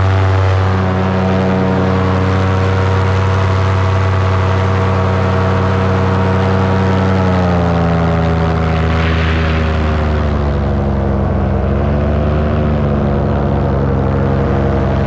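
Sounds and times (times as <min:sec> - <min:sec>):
paramotor engine droning: 0:00.0 - 0:15.0.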